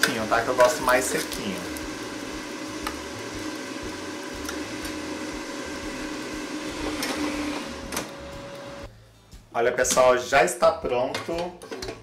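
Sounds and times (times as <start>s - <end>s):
air fryer fan hum: 0.0s - 8.9s.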